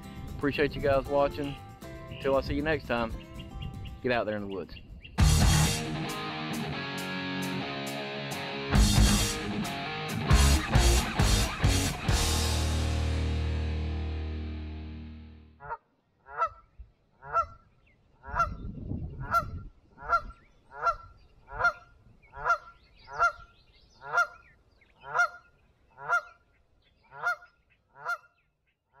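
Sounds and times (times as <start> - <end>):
outro music: 5.2 - 15.6
low rumble: 10.6 - 15.5
goose honking: 15.6 - 17.6, 18.2 - 18.6, 19.2 - 23.4, 24.0 - 26.4, 27.1 - 28.3.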